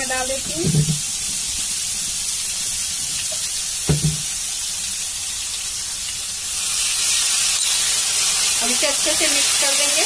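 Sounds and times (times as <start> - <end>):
spice paste sizzling in hot oil: 0.0 - 10.0
knock: 3.9 - 4.2.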